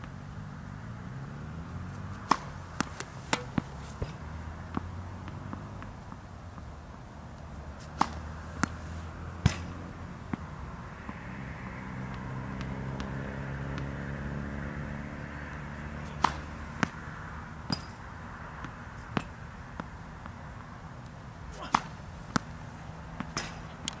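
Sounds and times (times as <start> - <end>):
tennis ball bounces: 1.4 - 24.0
racket hitting tennis ball: 1.5 - 7.0, 7.6 - 14.2, 15.4 - 24.0
ball impact: 1.9 - 6.2, 7.8 - 11.2, 15.8 - 20.4, 21.4 - 24.0.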